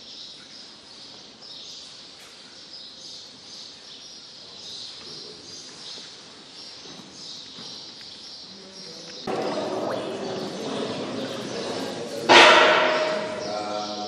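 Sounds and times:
small birds chirping chorus: 0:00.0 - 0:14.0.

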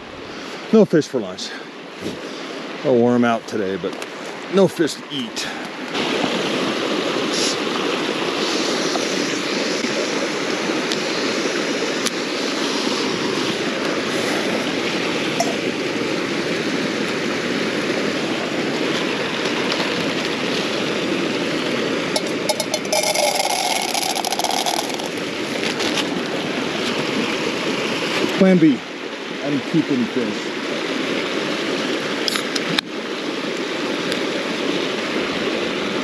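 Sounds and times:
stream rushing over rocks: 0:00.0 - 0:36.0
handling clicks and clatter: 0:22.2 - 0:26.1.

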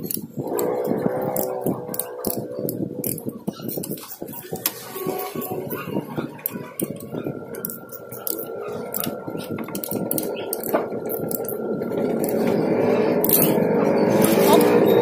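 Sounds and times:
socket ratchet clicking: 0:00.0 - 0:00.2, 0:01.3 - 0:04.5
broad noise: 0:00.0 - 0:15.0.

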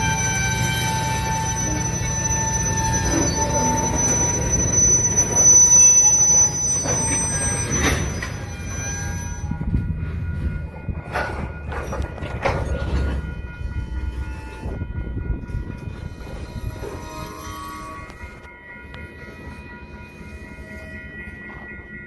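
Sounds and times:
high-pitched wheel squeal: 0:00.0 - 0:09.6
train wheels rumbling on rail: 0:00.0 - 0:22.0.

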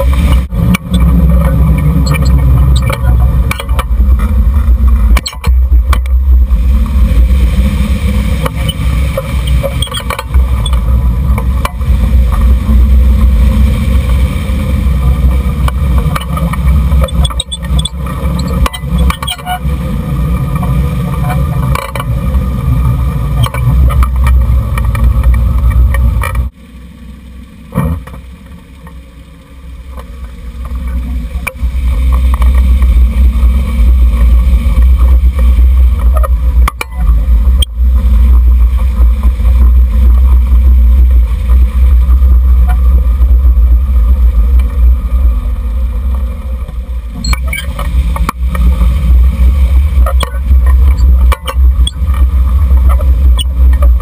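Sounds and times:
wind buffeting and road noise: 0:00.0 - 0:54.0.

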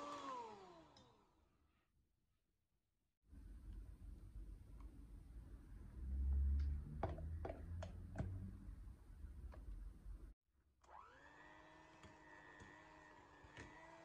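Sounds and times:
electric hand mixer whirring: 0:00.0 - 0:01.5, 0:10.9 - 0:14.0.

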